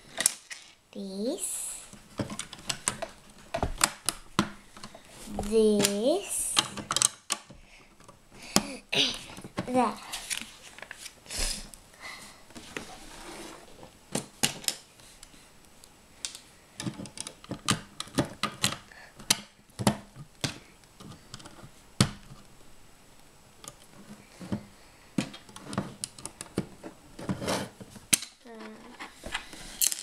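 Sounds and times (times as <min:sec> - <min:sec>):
plastic bricks clicking and clattering: 0:28.1 - 0:30.0.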